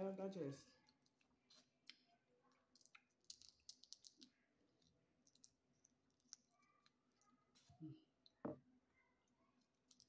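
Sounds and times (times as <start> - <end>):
crab shell cracking: 2.7 - 7.0.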